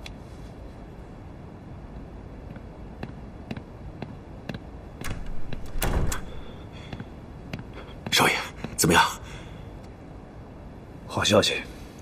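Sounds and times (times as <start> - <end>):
door opening: 5.0 - 6.6.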